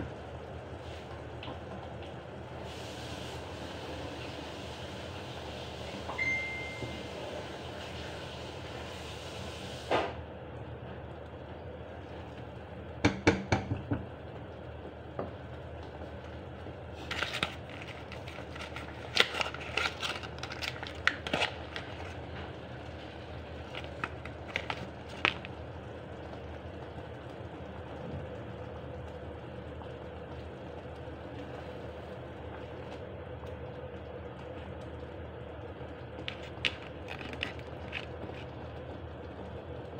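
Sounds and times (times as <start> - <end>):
low background hum: 0.0 - 39.9.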